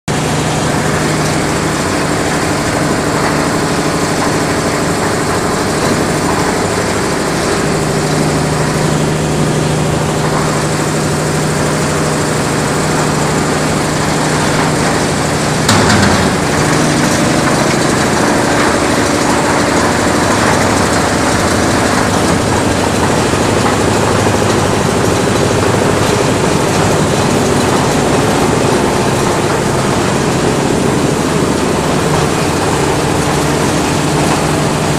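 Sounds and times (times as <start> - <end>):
concrete mixer motor and drum rumble: 0.1 - 34.9
sharp clunk: 15.7 - 17.8.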